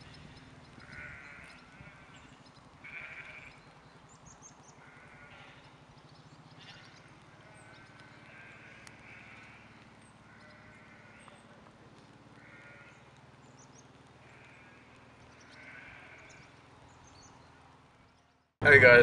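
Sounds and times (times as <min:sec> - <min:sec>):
sheep bleating: 0:00.8 - 0:03.6, 0:04.8 - 0:05.7, 0:06.6 - 0:11.5, 0:12.4 - 0:13.1, 0:14.2 - 0:16.5.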